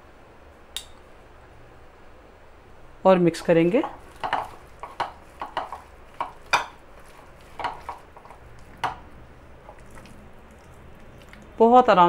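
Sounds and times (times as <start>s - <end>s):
hands mixing food in ceramic bowl: 3.4s - 11.6s.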